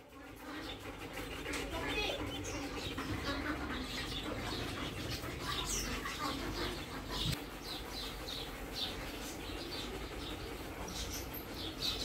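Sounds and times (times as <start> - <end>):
low background hum: 0.0 - 12.0
small birds chirping: 0.0 - 12.0.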